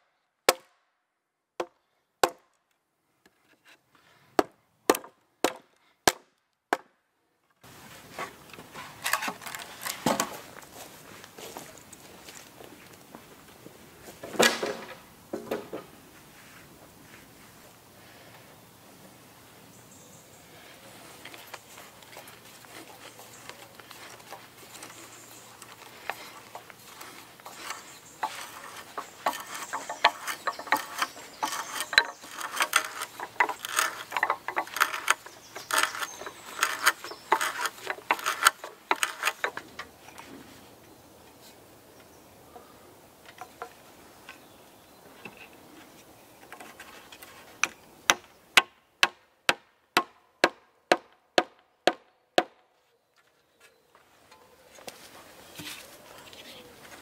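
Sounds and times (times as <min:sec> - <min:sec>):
hand auger boring into log: 0:24.1 - 0:39.7.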